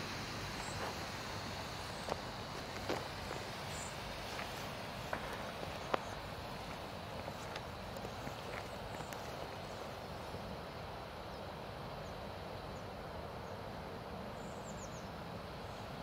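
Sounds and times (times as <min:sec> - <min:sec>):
smoke flare hissing: 0:00.0 - 0:08.3.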